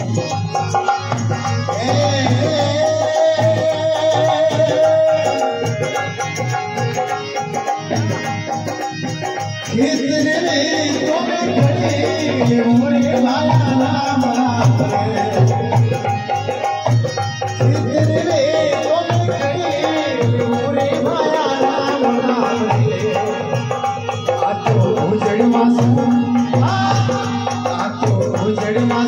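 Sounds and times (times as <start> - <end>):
harmonium: 0.0 - 29.0
man singing: 0.0 - 29.0.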